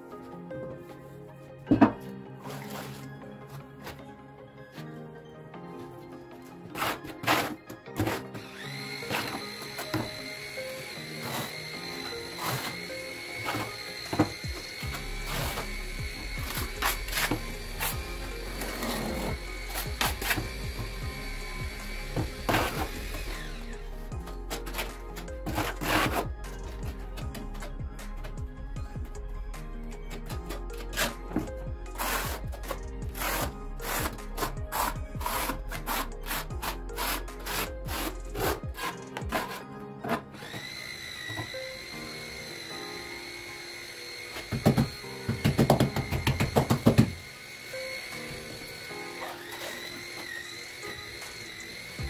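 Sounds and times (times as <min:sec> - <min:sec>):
background music: 0:00.0 - 0:52.0
trowel scraping plastic bucket: 0:01.7 - 0:03.1, 0:06.6 - 0:10.2, 0:10.8 - 0:21.0, 0:22.1 - 0:23.7, 0:24.5 - 0:28.3, 0:30.2 - 0:41.5
music with a beat: 0:14.3 - 0:39.6.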